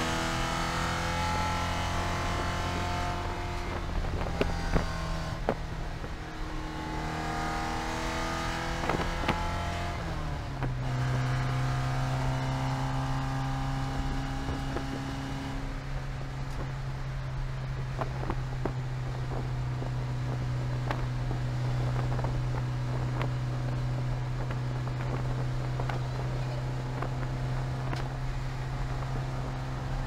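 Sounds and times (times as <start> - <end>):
race car engine from cockpit: 0.0 - 30.0.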